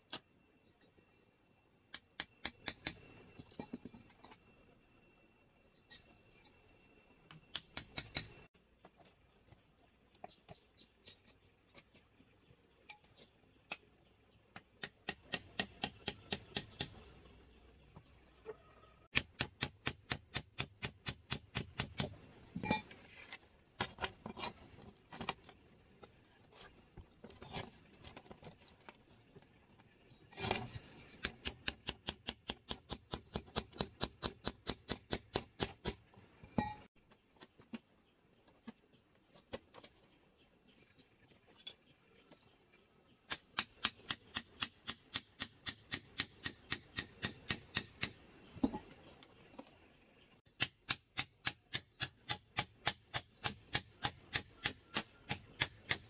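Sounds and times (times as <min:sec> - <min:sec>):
hammer tapping on bamboo: 0:14.5 - 0:17.0, 0:19.1 - 0:22.1, 0:43.3 - 0:48.2, 0:50.5 - 0:56.0.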